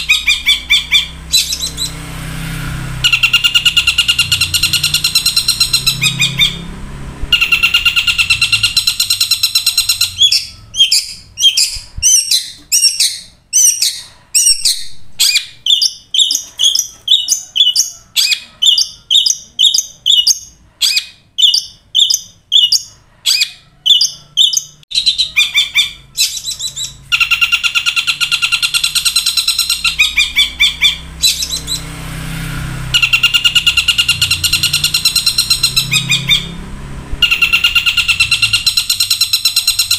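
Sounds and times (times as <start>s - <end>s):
shrike singing: 0.0s - 20.5s, 32.7s - 39.9s
harsh buzzing bird trill: 0.0s - 39.9s.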